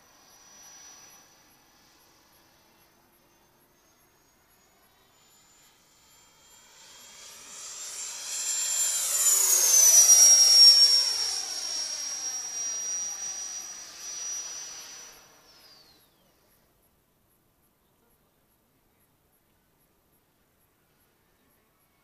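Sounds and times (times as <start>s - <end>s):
model jet fan whine flyby: 0.0s - 16.6s.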